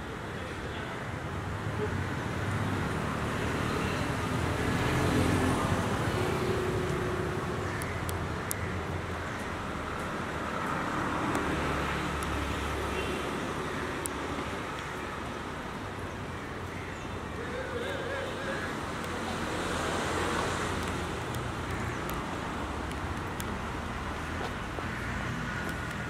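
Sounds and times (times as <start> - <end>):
vehicle engines passing: 1.3 - 26.0.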